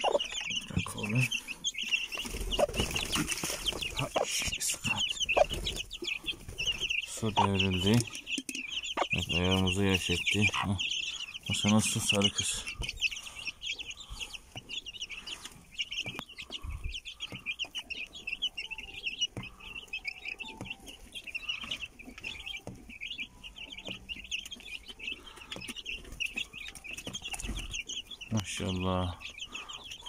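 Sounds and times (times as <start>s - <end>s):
hen clucking softly: 0.0s - 1.1s, 4.0s - 18.4s
chicks peeping: 0.0s - 30.0s.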